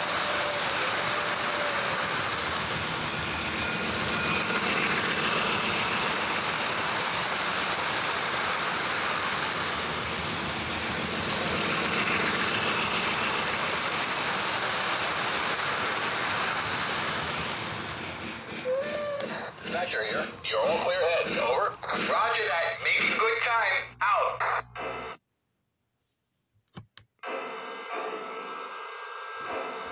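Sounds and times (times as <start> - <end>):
toy train wheels rumbling: 0.0 - 23.8.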